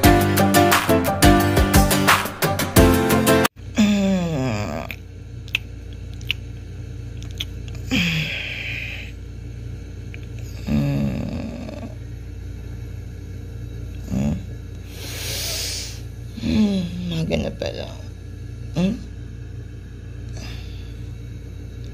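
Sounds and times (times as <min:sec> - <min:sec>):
steady low hum: 0:03.4 - 0:21.9
person making low vocal sounds: 0:03.6 - 0:05.0, 0:07.7 - 0:09.1, 0:10.4 - 0:12.0, 0:13.9 - 0:14.6, 0:15.3 - 0:17.3, 0:18.7 - 0:19.2.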